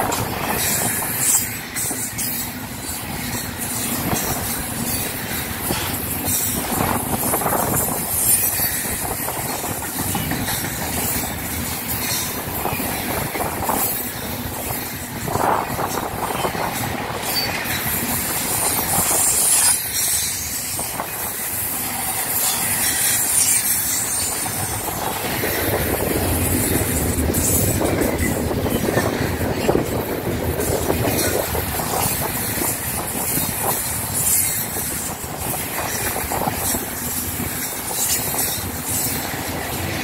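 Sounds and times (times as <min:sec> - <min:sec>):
train wheels rumbling on rail: 0:00.0 - 0:40.0.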